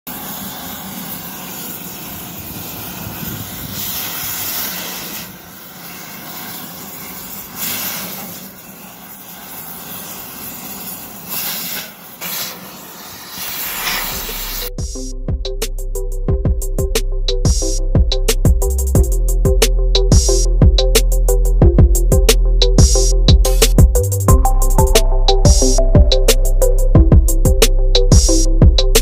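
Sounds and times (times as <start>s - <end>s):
gas torch flame hissing: 0.1s - 15.1s.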